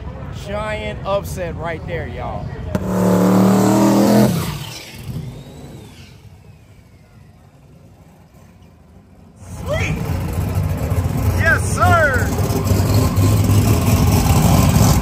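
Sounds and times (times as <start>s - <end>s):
race car engine roaring: 0.1s - 15.0s
faint falling whine: 2.8s - 9.3s.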